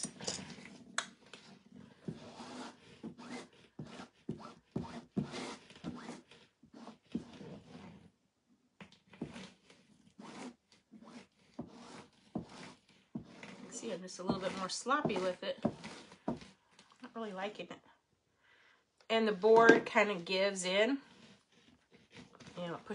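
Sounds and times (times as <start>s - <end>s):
squeegee scraping across stencil: 1.4s - 8.1s, 9.1s - 16.6s, 20.6s - 22.9s.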